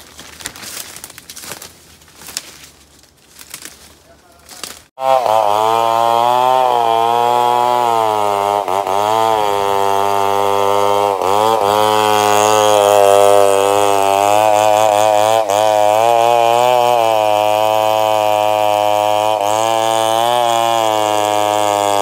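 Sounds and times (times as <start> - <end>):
chainsaw running at high revs: 4.9 - 22.0.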